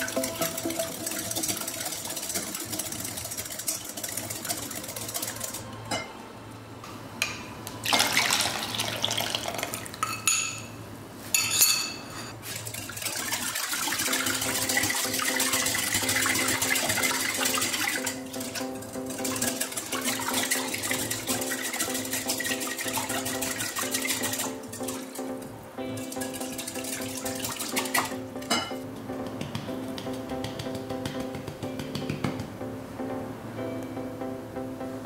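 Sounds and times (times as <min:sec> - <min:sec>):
liquid pouring and splashing: 0:00.0 - 0:05.6, 0:07.8 - 0:10.0, 0:12.4 - 0:25.2, 0:26.0 - 0:28.2
wire whisk beating batter in bowl: 0:00.0 - 0:05.7, 0:12.4 - 0:25.2, 0:26.0 - 0:28.6.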